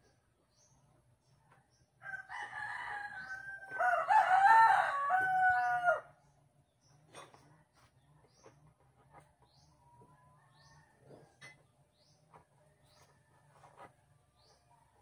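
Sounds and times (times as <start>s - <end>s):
rooster crowing: 2.0s - 6.1s.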